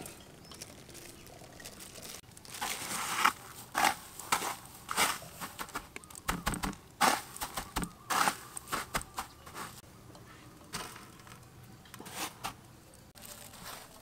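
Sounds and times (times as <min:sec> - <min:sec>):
crunchy rustles of breadcrumbs: 0:00.5 - 0:09.8, 0:13.2 - 0:14.0.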